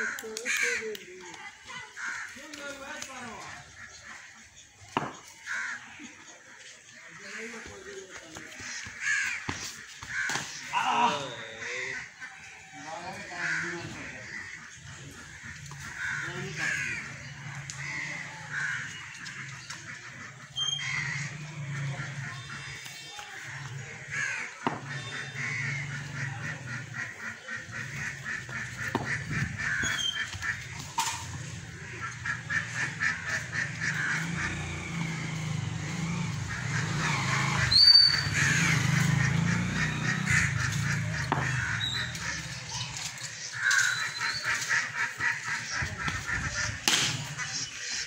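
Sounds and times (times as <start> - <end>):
birds calling: 0.0 - 48.0
cricket bat hitting ball: 24.6 - 25.0, 28.8 - 29.4, 46.8 - 47.2.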